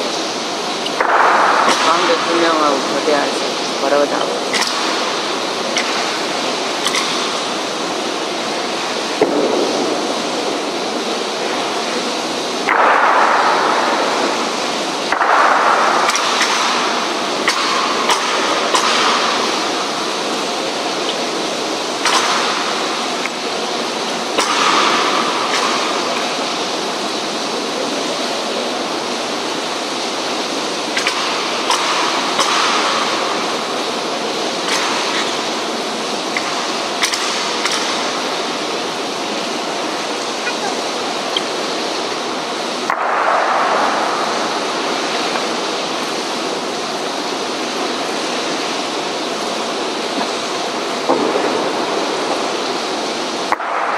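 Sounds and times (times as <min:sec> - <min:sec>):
rain falling: 0:00.0 - 0:53.9.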